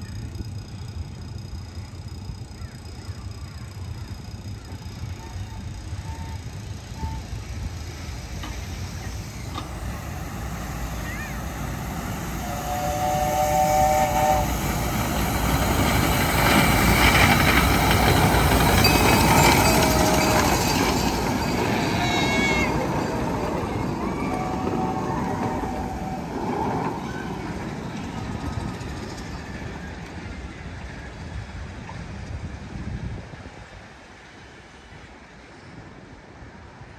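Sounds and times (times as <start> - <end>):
train wheels clattering on rails: 0.0 - 30.9
steam whistle: 5.2 - 7.5, 12.1 - 15.0, 18.8 - 20.9, 21.8 - 27.2.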